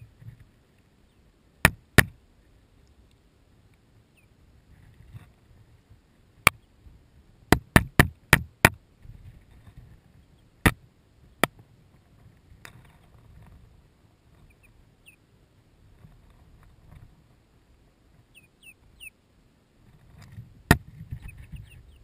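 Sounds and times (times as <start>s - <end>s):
faint chick peep: 18.3s - 19.2s, 21.2s - 22.0s.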